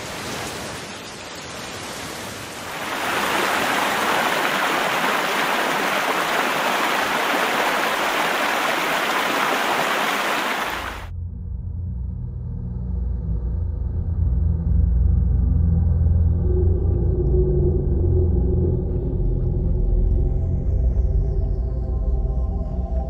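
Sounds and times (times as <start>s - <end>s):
floodwater rushing: 0.0s - 11.1s
heavy rain hissing: 0.0s - 11.1s.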